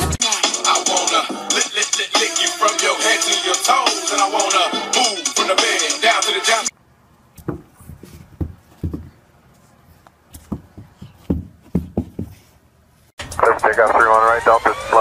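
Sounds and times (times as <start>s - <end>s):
dog paws thudding on carpet: 7.4s - 9.2s, 10.4s - 12.4s.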